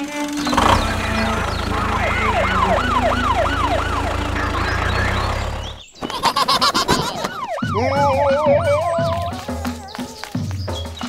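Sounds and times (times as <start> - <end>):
yelping siren: 1.2 - 5.8, 6.6 - 9.6.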